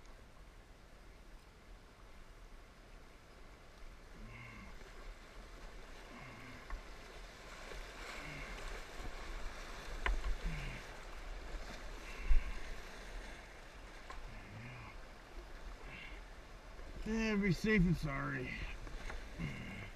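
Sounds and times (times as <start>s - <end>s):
paddle strokes: 3.2s - 19.9s
water rushing over rocks: 4.1s - 19.9s.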